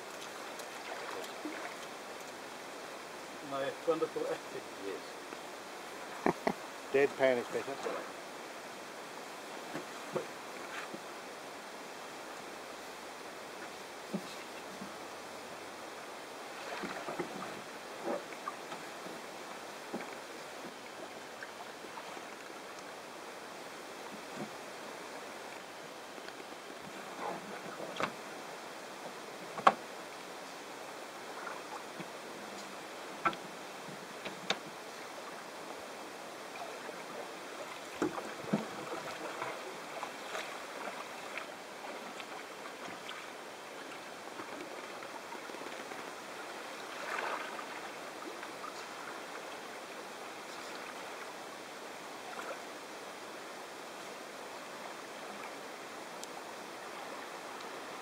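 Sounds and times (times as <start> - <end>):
paddle splashes: 0.0 - 2.7, 9.4 - 11.3, 13.5 - 29.9, 36.4 - 52.8
sea water lapping at shore: 0.0 - 58.0
kayak knocks: 6.2 - 6.6, 29.6 - 29.8.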